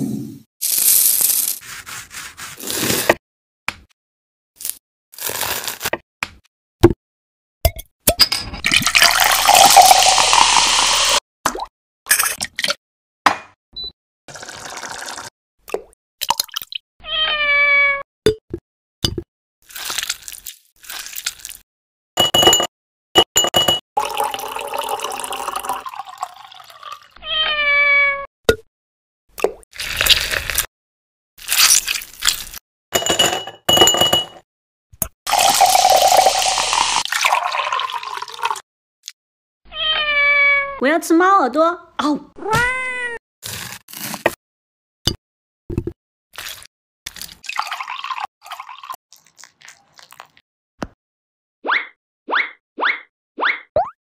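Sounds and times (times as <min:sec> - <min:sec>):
lemon scrubbed with salt: 0:01.6 - 0:03.1, 0:19.7 - 0:21.6, 0:49.1 - 0:50.4
ice cubes clinking into glass: 0:08.7 - 0:11.1, 0:35.3 - 0:38.6
milk pouring: 0:08.7 - 0:11.2, 0:24.0 - 0:27.1, 0:35.3 - 0:38.6, 0:46.4 - 0:50.4
cat meow: 0:17.0 - 0:18.0, 0:27.2 - 0:28.3, 0:39.7 - 0:40.8, 0:42.4 - 0:43.2.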